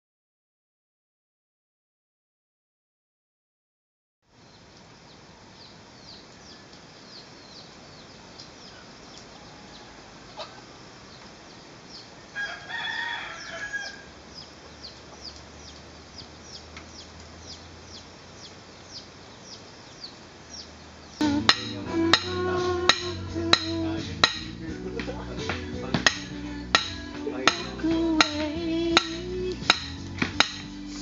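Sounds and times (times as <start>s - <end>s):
rooster crowing: 9.2s - 10.8s, 12.2s - 14.4s.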